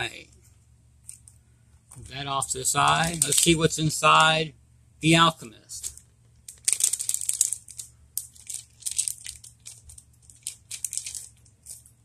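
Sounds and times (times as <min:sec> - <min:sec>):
packaging crinkling as torn open: 0:02.9 - 0:03.6, 0:05.8 - 0:12.0.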